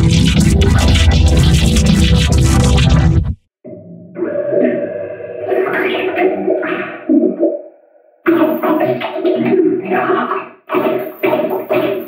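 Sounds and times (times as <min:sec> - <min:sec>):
distorted cartoon cereal crunching: 0:00.0 - 0:03.2.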